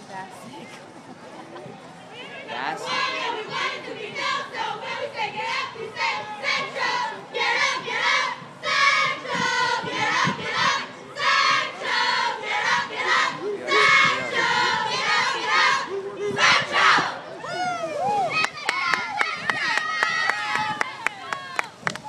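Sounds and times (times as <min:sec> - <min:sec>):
crowd shouting a chant: 0:02.2 - 0:17.3.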